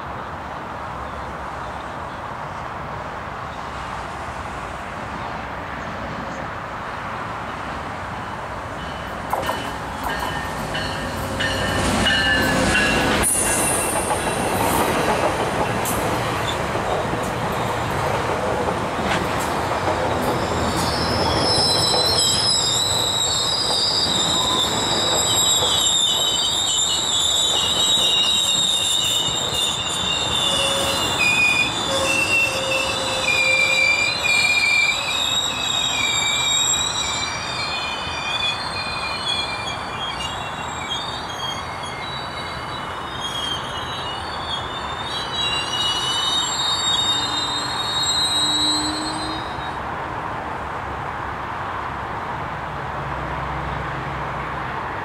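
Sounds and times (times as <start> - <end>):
train rumbling past: 0.8 - 55.0
train wheels squealing: 8.7 - 17.7, 20.0 - 49.8.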